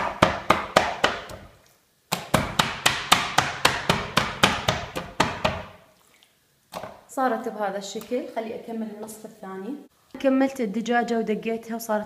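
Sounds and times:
kitchen tool pounding raw chicken: 0:00.0 - 0:01.4, 0:02.1 - 0:05.8.

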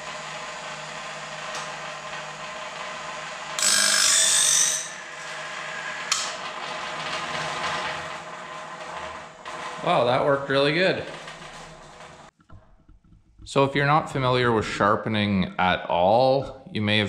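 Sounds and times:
motor humming: 0:00.0 - 0:04.0
grinding wheel on blade teeth: 0:00.0 - 0:12.3.

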